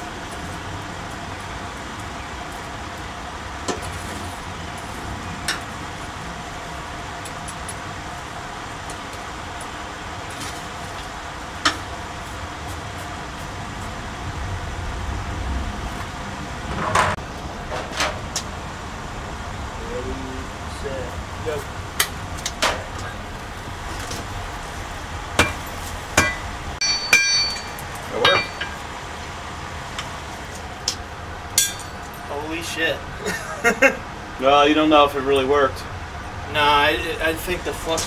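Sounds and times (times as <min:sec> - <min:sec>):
metallic clatter: 0:25.4 - 0:28.9, 0:31.6 - 0:32.3.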